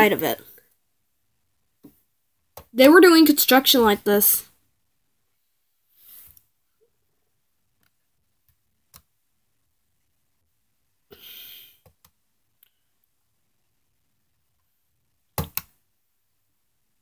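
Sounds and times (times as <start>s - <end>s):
short exhale: 11.1s - 11.8s
computer mouse clicks: 15.4s - 15.7s.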